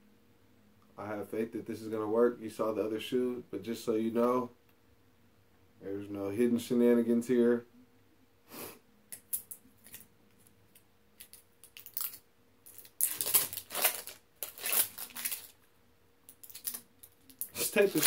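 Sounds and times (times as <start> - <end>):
tape clicks and rustles: 9.1 - 15.7, 16.3 - 18.0
tape tearing off roll: 12.9 - 15.5.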